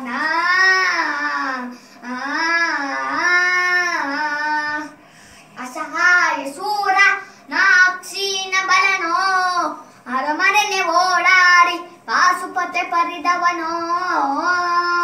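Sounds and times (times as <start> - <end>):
young boy singing: 0.0 - 5.0, 5.6 - 15.0.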